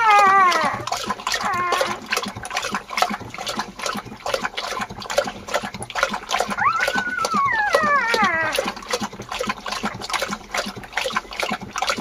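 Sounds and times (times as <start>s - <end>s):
puppies whining: 0.0s - 2.0s, 6.6s - 8.7s
dog lapping wet food: 0.0s - 12.0s.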